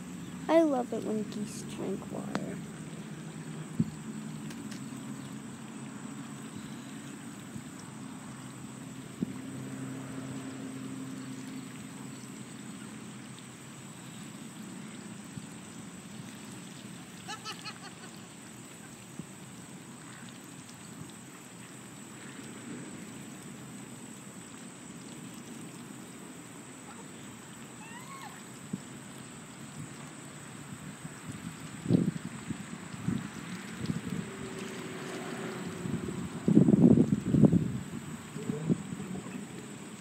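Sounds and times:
outdoor background noise: 0:00.0 - 0:40.0
water trickling from goose bill: 0:00.0 - 0:40.0.

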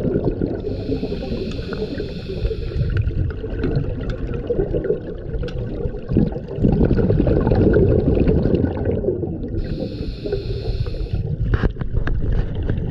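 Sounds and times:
exhaled bubbles rushing: 0:00.0 - 0:12.9
regulator inhalation hiss: 0:00.7 - 0:03.0, 0:09.6 - 0:11.2.

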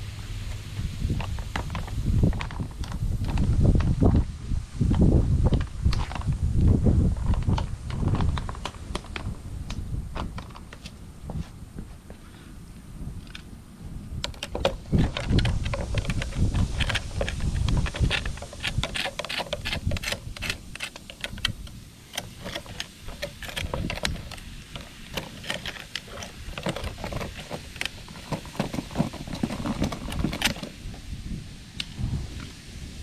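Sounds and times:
knife blades clicking on rock: 0:14.3 - 0:28.0.

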